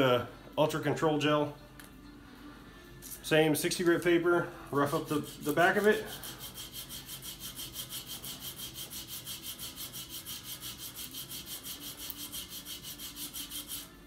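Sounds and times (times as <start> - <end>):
sandpaper scratching: 4.8 - 14.0.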